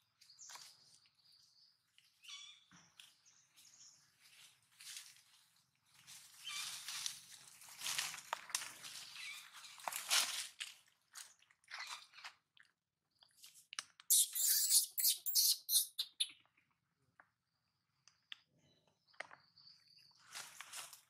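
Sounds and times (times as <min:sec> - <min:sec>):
dry leaves crackling and rustling: 0:04.3 - 0:10.8
faint high chirps: 0:14.1 - 0:16.4.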